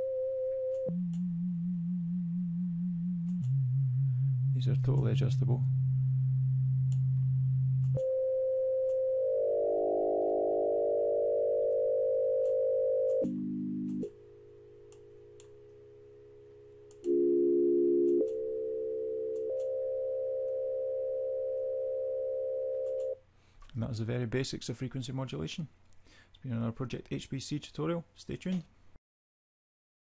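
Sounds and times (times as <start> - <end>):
buzzy synthesizer tones: 0.0 - 15.4.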